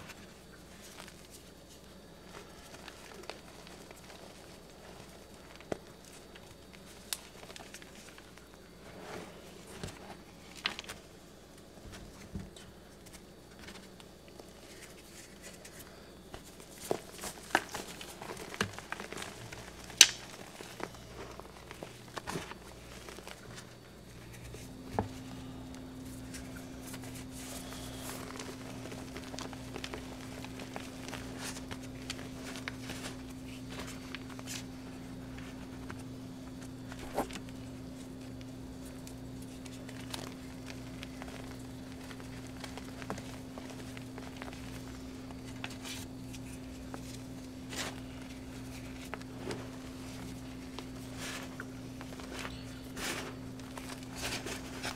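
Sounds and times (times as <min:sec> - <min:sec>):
steady low hum: 0:00.0 - 0:54.9
chalk crunching and snapping: 0:14.6 - 0:34.7.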